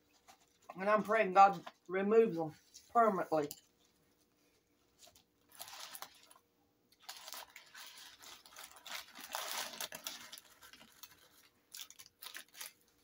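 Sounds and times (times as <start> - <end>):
paper wrapper rustling: 4.8 - 13.0.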